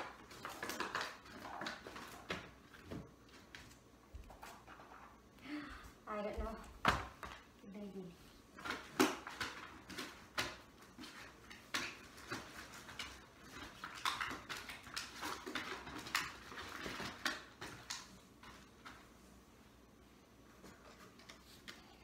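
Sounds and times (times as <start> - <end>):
package rustling: 0.0 - 3.8, 8.6 - 18.1.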